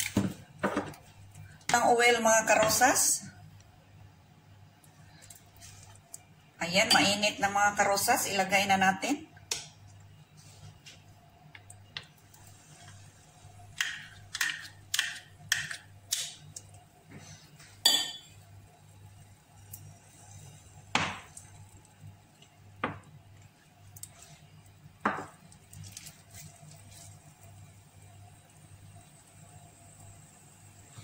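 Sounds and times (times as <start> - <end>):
kitchenware clinking on frying pan: 17.8 - 18.3.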